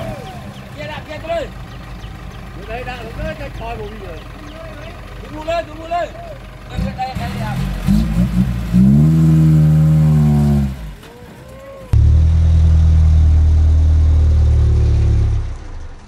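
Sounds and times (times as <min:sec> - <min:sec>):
truck engine revving: 0:06.6 - 0:16.0.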